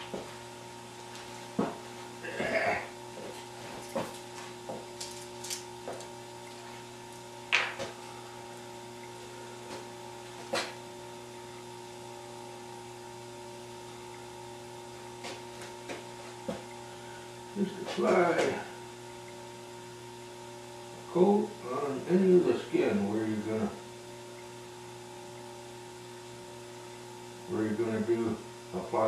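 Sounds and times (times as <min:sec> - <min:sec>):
electrical hum: 0:00.0 - 0:29.0
small tools clicking and tapping: 0:05.0 - 0:06.1.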